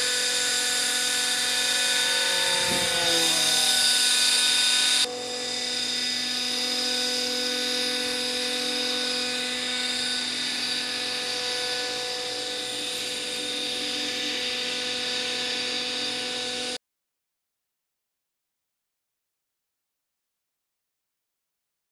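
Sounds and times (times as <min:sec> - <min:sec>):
high-pitched electric motor whine: 0:00.0 - 0:16.8.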